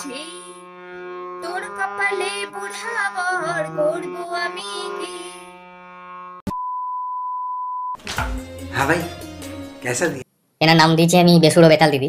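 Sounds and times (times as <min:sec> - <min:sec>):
woman singing: 0:00.0 - 0:00.6, 0:01.4 - 0:05.5
harmonium chords: 0:00.0 - 0:06.4, 0:08.3 - 0:10.2
steady test tone beep: 0:06.5 - 0:08.0.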